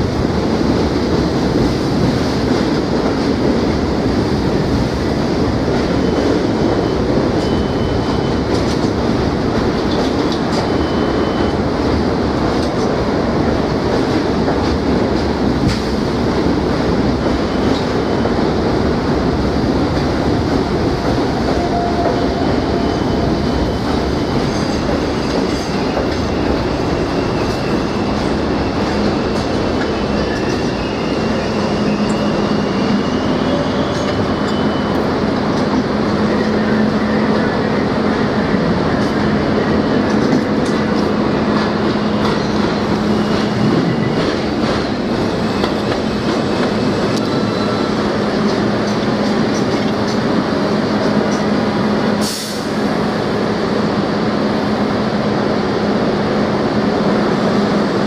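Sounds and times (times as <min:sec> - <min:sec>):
train wheels on track: 0:00.0 - 0:58.0
high wheel squeals: 0:21.6 - 0:35.1.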